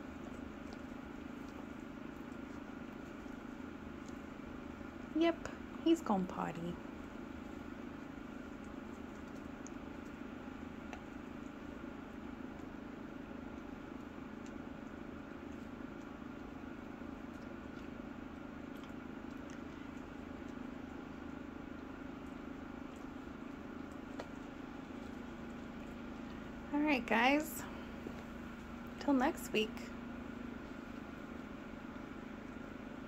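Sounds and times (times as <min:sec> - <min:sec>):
steady low hum: 0:00.0 - 0:33.0.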